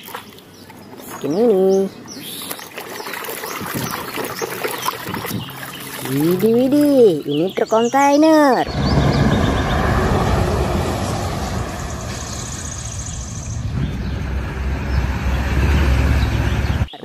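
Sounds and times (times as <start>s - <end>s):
truck diesel engine rumbling: 8.6s - 17.0s.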